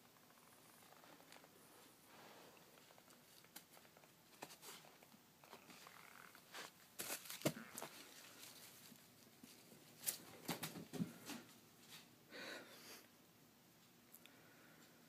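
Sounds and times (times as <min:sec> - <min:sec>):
paper rustling: 0:02.8 - 0:11.4.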